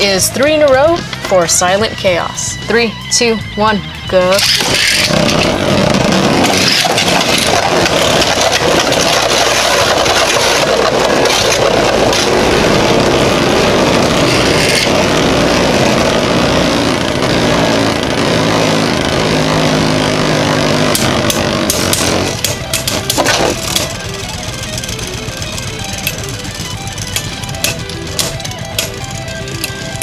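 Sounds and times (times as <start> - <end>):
spinning tops whirring: 4.3 - 30.0.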